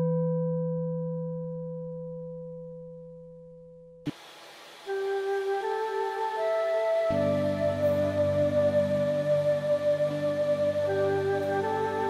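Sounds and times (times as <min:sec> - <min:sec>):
faint hiss: 0:04.1 - 0:12.0
background music sustained notes: 0:04.8 - 0:12.0.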